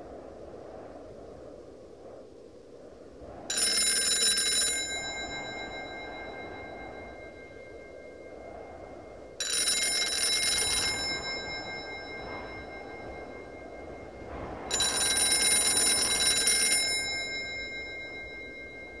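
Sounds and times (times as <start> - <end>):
telephone bell ringing: 3.5 - 8.4, 9.4 - 19.0
drone of held tones: 3.5 - 19.0.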